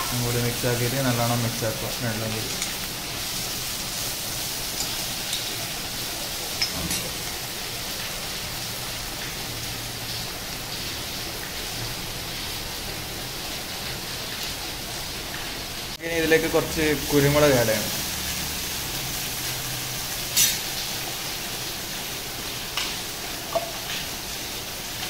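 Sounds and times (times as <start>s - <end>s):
onion and prawns sizzling in oil: 0.0s - 25.0s
spoon tapping pan: 23.5s - 23.9s.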